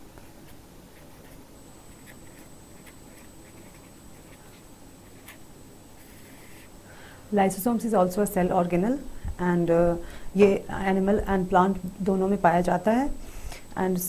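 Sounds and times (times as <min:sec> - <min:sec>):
pen scratching on paper: 0:00.9 - 0:05.4.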